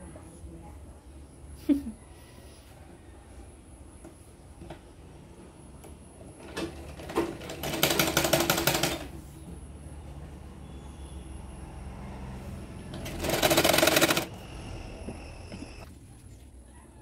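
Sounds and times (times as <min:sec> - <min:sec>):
sewing machine needle clattering: 0:13.0 - 0:14.3
sewing machine clicks: 0:13.0 - 0:14.4.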